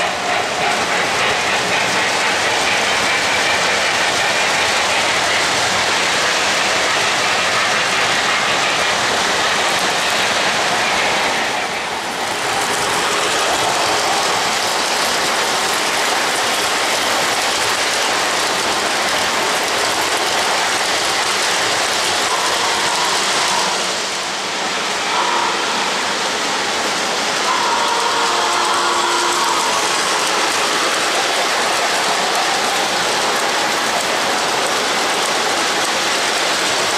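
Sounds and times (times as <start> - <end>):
model train wheels rattling: 0.0 - 24.0, 26.8 - 36.9.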